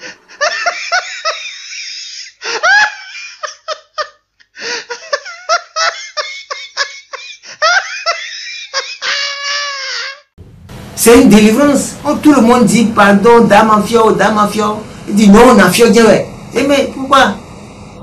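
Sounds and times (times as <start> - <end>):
high-pitched laughter: 0.3 - 10.3.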